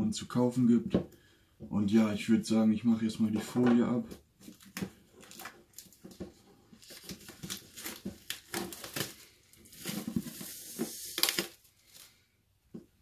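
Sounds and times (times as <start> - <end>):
plastic film crinkling and tearing: 4.4 - 12.2.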